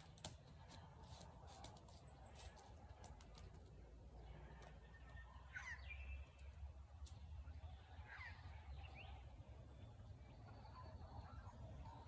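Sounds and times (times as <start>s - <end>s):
distant bird call: 4.2s - 12.0s.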